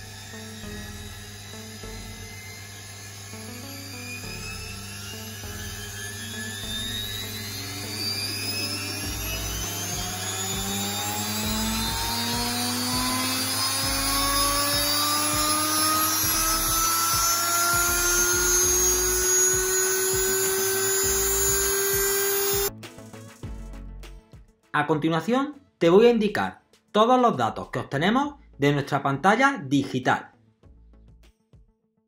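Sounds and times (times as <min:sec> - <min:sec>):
electric motor whine rising: 0:00.0 - 0:22.7.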